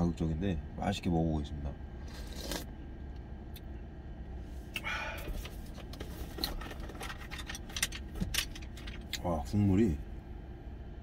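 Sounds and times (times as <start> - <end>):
low steady rumble: 0.0 - 11.0
man sipping broth: 2.0 - 2.7
breathy exhale: 4.8 - 5.4.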